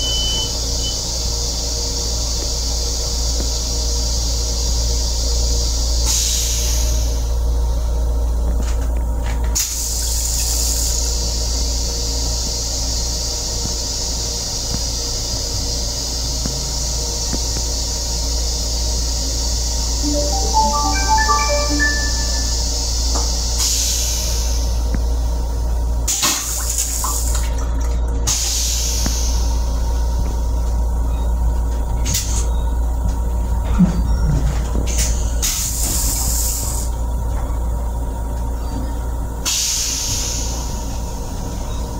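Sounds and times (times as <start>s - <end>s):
toilet flushing spray hiss: 1.0s - 7.3s.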